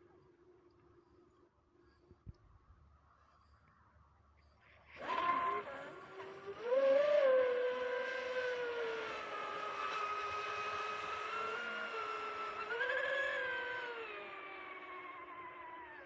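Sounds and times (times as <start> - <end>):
electric motors whining: 4.9 - 16.0.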